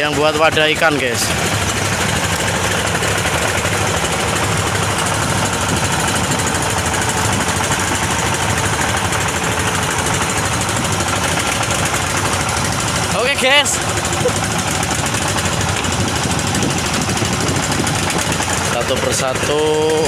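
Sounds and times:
boat diesel engine running: 0.0s - 20.0s
water washing along hull: 0.0s - 20.0s.

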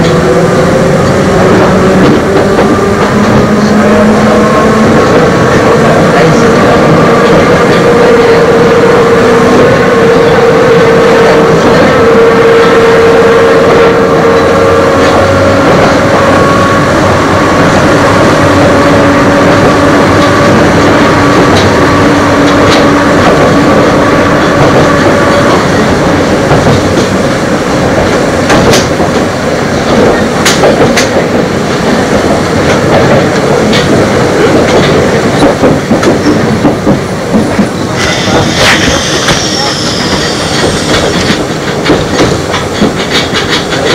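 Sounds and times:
train motor and gear whine: 0.0s - 43.9s
train wheels rumbling: 0.0s - 43.9s
wheels clacking over rail joints: 27.8s - 39.0s, 39.9s - 43.9s.

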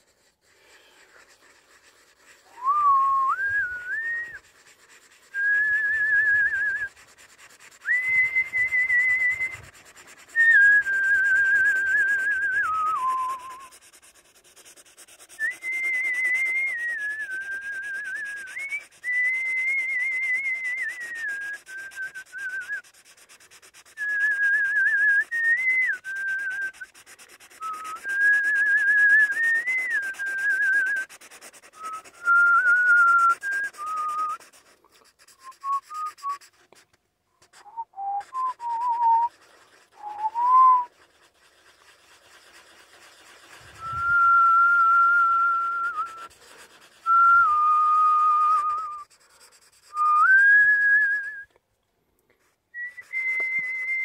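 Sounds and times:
marker scratching on paper: 0.0s - 2.6s, 3.8s - 50.5s, 52.3s - 53.8s
person whistling a tune: 2.5s - 4.4s, 5.3s - 6.9s, 7.8s - 9.7s, 10.3s - 13.8s, 15.3s - 22.9s, 23.9s - 31.1s, 31.8s - 34.5s, 35.4s - 36.5s, 37.6s - 40.9s, 43.7s - 46.4s, 47.0s - 49.2s, 49.9s - 51.6s, 52.7s - 54.0s.

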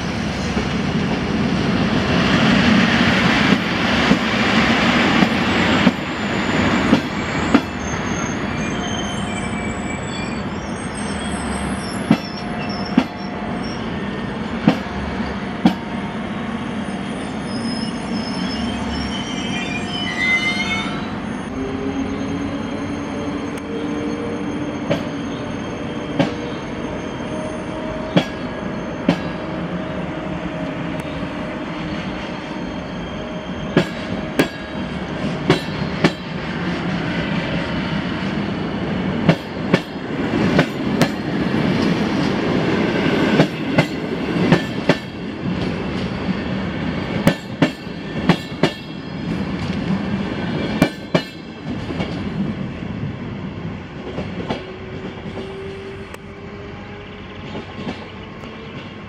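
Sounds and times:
faint wheel squeal: 6.7s - 13.0s, 16.7s - 27.7s
train wheels clicking over rail joints: 47.1s - 52.4s, 57.4s - 59.0s.

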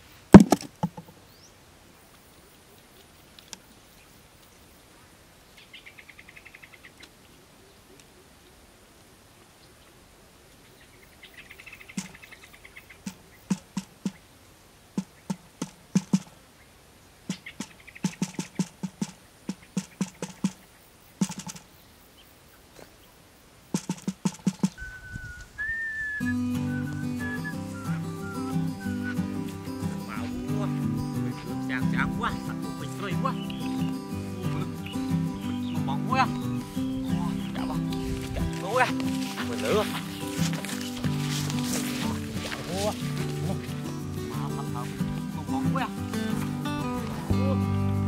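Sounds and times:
quail calling in trills: 17.3s - 18.6s, 24.6s - 30.2s
whistled melody: 24.7s - 45.3s.

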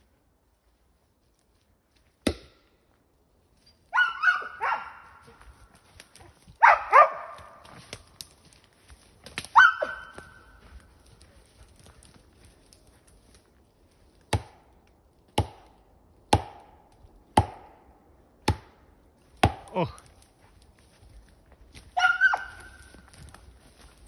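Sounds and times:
dog barking: 3.9s - 5.3s, 6.6s - 7.6s, 9.6s - 10.4s, 22.0s - 22.8s.

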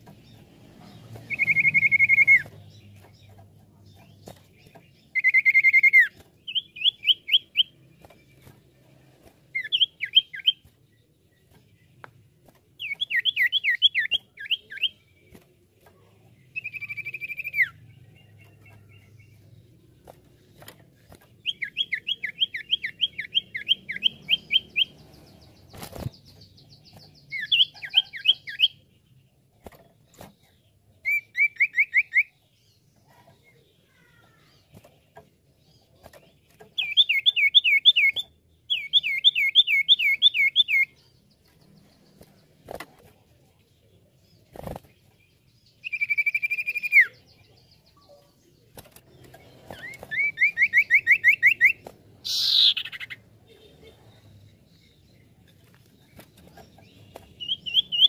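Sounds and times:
bird whistling calls: 1.3s - 2.5s, 49.8s - 53.2s.

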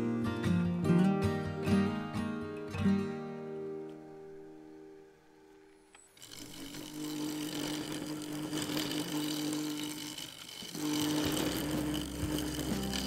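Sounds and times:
wood lathe humming: 5.9s - 13.0s
turning tool scraping wood: 6.0s - 13.0s.

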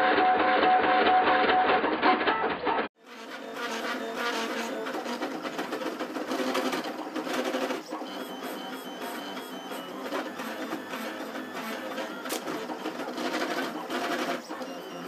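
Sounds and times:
stepper motors whirring: 3.1s - 15.0s.

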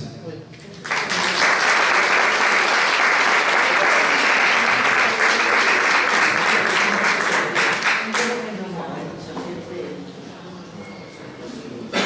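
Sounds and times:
audience applauding: 0.8s - 8.5s.

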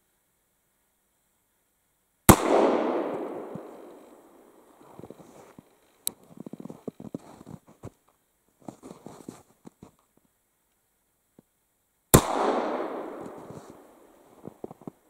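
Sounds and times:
gunshot echoing: 2.3s - 4.4s, 12.1s - 14.0s
handling noise: 13.1s - 15.0s.

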